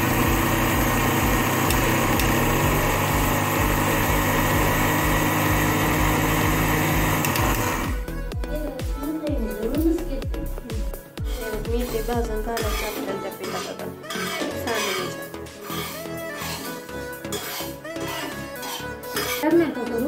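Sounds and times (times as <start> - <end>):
mixer grinder grinding dry lentils: 0.0 - 8.1, 11.2 - 19.5.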